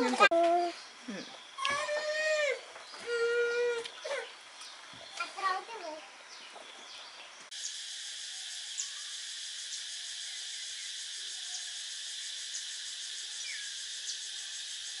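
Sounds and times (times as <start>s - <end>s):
high-pitched insect chorus: 7.5s - 15.0s.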